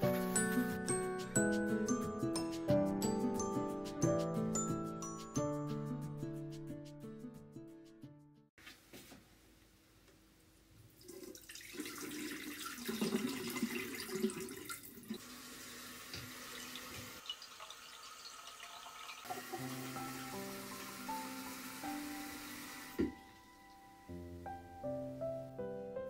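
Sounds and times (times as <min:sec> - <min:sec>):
tap water splashing into basin: 0:16.0 - 0:19.8, 0:22.9 - 0:23.2.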